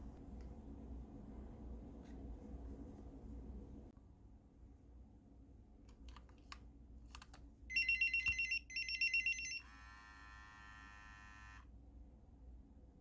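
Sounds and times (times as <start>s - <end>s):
low steady pager tone: 7.7s - 11.7s.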